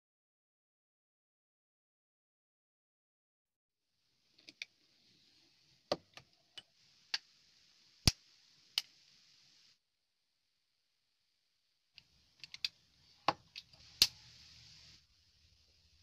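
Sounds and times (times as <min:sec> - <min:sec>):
faint hiss: 0:03.9 - 0:09.9, 0:11.2 - 0:16.0.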